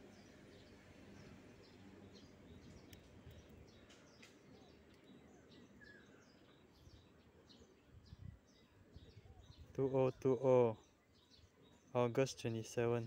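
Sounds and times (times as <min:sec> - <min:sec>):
faint bird chirps: 0:00.0 - 0:13.0
faint clicks: 0:02.8 - 0:05.1.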